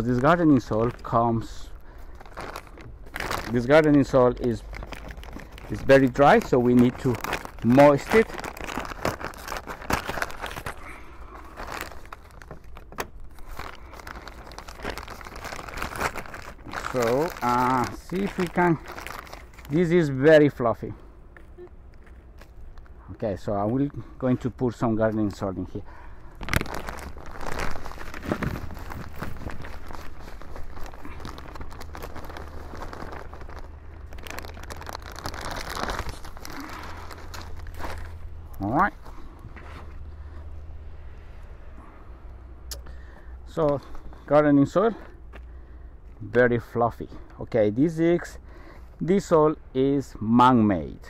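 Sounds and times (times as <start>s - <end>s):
small crackles: 0.0s - 20.2s, 21.4s - 23.1s, 24.4s - 40.4s
dry soil crinkling and rustling: 0.0s - 40.4s, 43.5s - 51.0s.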